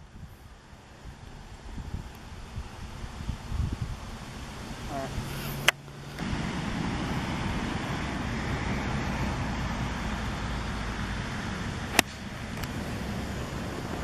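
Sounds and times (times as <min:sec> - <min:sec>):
outdoor background noise: 0:00.0 - 0:14.0
golf club striking ball: 0:11.7 - 0:12.8.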